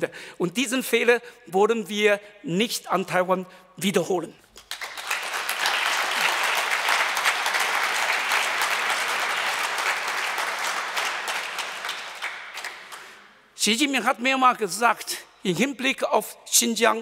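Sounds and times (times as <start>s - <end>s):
audience applauding: 4.6s - 13.3s.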